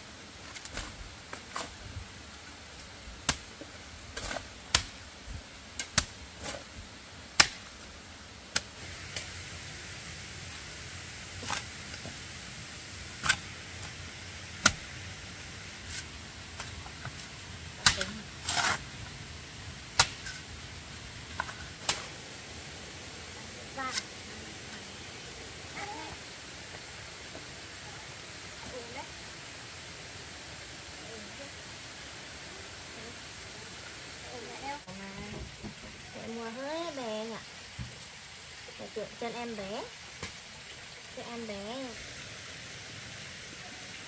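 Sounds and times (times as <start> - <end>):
steady hiss: 0.0 - 44.0.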